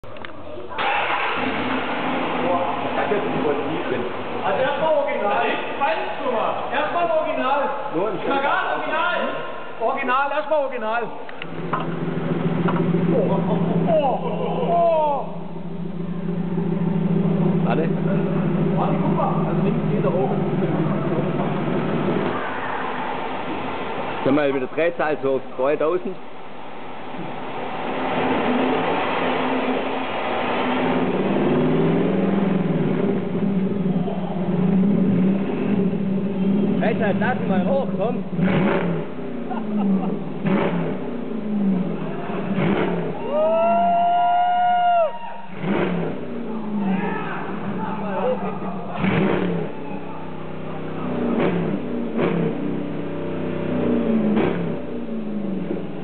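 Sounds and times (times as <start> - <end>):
exhaust cracks: 0.0 - 44.0, 45.4 - 56.0
car exhaust at raised revs: 27.1 - 43.6, 45.5 - 56.0.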